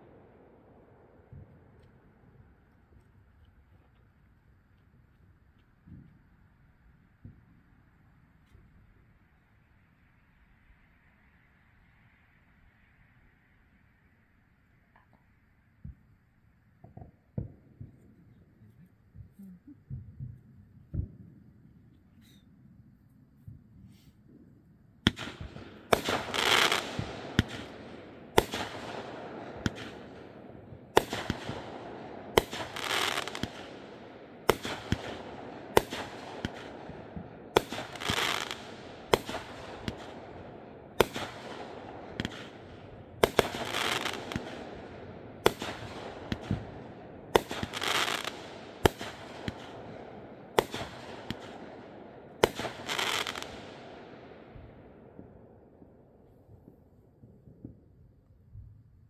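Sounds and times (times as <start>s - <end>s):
fireworks crackling: 25.0s - 54.0s
fireworks bangs: 25.0s - 55.4s.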